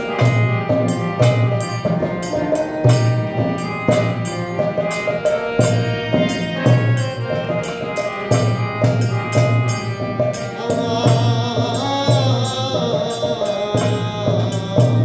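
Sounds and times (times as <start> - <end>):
hand drum beat: 0.0 - 15.0
harmonium held notes: 0.0 - 15.0
man singing a chant: 10.6 - 15.0.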